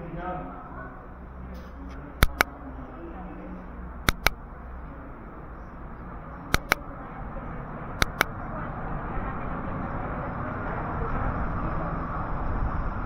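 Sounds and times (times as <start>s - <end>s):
low street rumble: 0.0s - 13.0s
vehicle approaching: 0.0s - 13.0s
sharp double clicks: 2.2s - 2.5s, 4.0s - 4.4s, 6.5s - 6.8s, 8.0s - 8.3s.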